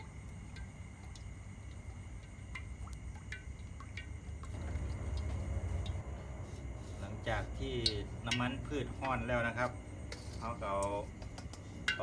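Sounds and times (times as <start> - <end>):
oil pouring into a wok: 0.0 - 9.1.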